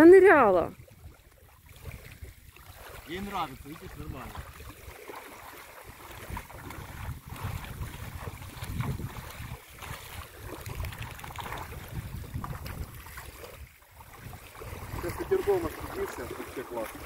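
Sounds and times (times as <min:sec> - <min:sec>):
shallow water splashing: 0:00.0 - 0:17.0
wind buffeting microphone: 0:05.8 - 0:17.0.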